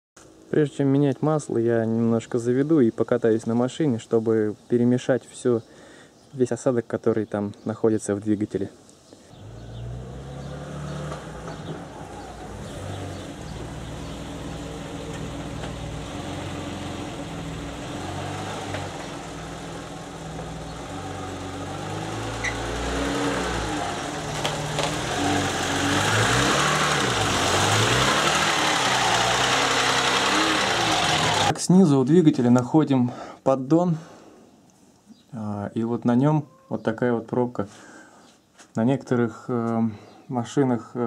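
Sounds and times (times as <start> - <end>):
car engine running slowly: 9.3 - 31.5.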